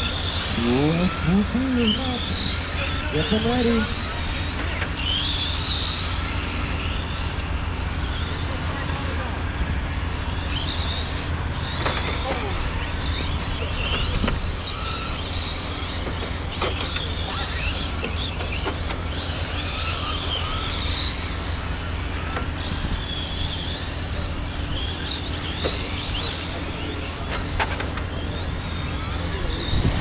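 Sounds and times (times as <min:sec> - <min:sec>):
rc car motors whining: 0:00.0 - 0:30.0
steady low rumble: 0:29.6 - 0:30.0.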